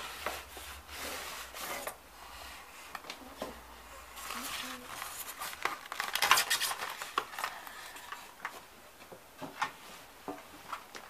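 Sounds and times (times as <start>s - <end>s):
scraping plastic packaging: 4.1s - 8.4s.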